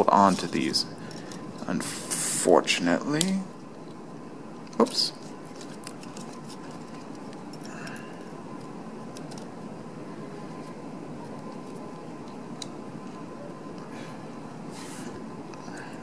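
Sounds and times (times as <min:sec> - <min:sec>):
room hum: 0:00.0 - 0:16.0.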